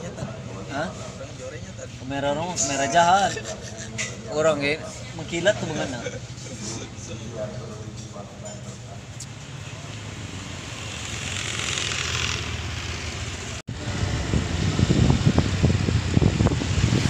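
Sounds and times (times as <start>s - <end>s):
street noise: 0.0s - 17.0s
passing vehicle: 8.8s - 17.0s
wind buffeting microphone: 13.7s - 17.0s.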